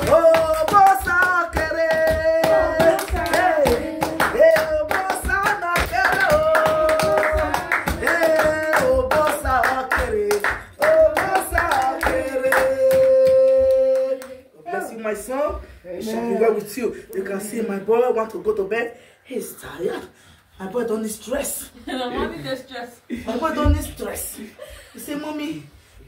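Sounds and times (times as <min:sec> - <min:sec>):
hands clapping a steady beat: 0:00.0 - 0:14.5
woman singing: 0:01.5 - 0:04.4.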